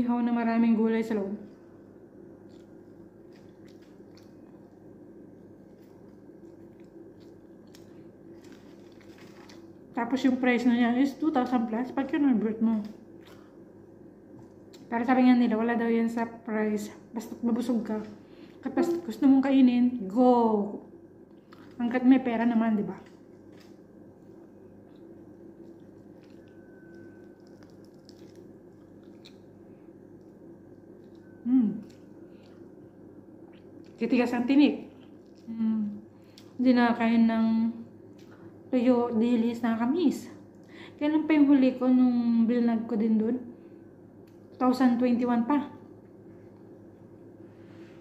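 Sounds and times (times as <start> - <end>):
low steady hum: 0.0 - 48.0
close-mouthed chewing: 2.4 - 4.8, 5.5 - 9.8, 23.0 - 34.1, 34.9 - 36.6.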